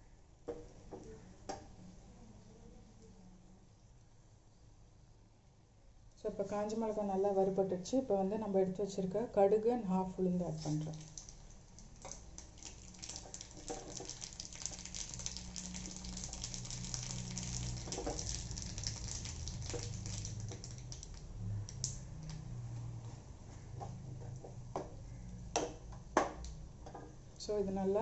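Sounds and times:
seeds crackling in hot oil: 10.5s - 22.6s.

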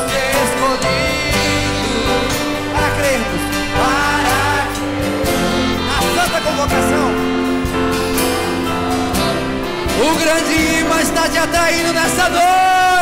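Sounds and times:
congregation singing a hymn: 0.0s - 6.1s
instrumental accompaniment chords: 0.0s - 13.0s.

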